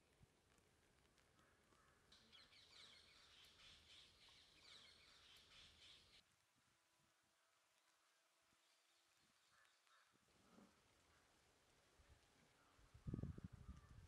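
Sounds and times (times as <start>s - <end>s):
faint birds chirping: 1.3s - 6.2s, 7.3s - 14.0s.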